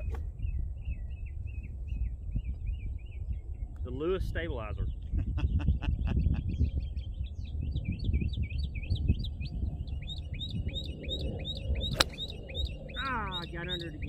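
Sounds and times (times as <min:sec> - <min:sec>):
birds chirping: 0:00.0 - 0:14.0
low rumble: 0:04.9 - 0:14.0
golf club striking ball: 0:11.9 - 0:12.4.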